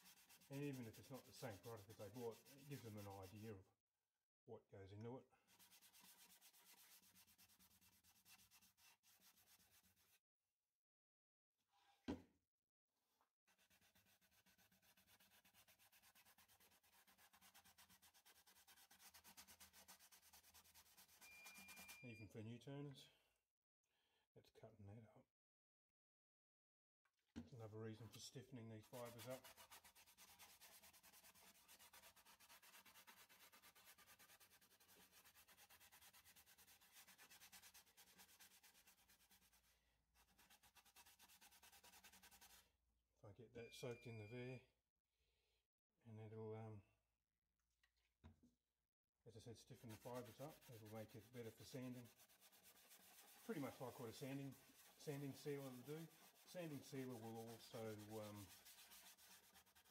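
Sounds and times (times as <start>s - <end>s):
cloth pad rubbing wooden bowl: 0.0s - 3.4s, 5.5s - 10.2s, 13.5s - 22.1s, 28.2s - 42.6s, 49.6s - 59.9s.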